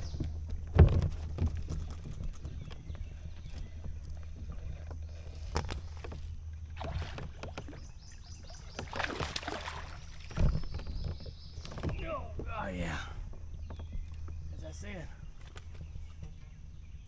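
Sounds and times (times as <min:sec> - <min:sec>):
water moving around kayak: 0:00.0 - 0:17.0
fish splashing: 0:06.7 - 0:10.7.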